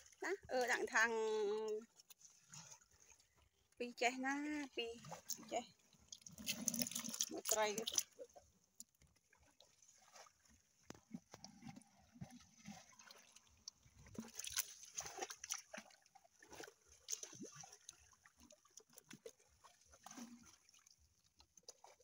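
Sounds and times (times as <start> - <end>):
fish splashing in bucket: 5.0 - 8.3, 10.0 - 21.0.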